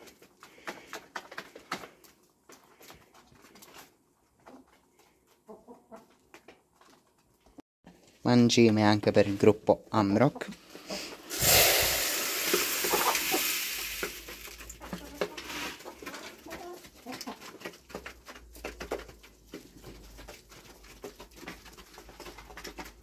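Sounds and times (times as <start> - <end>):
hens pecking pellets: 0.0 - 23.0
feed pellets pouring into feeder: 11.2 - 14.8.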